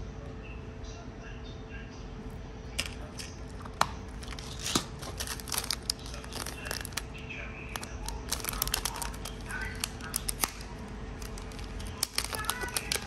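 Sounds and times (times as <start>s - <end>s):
plastic packets crinkling: 2.8s - 13.0s.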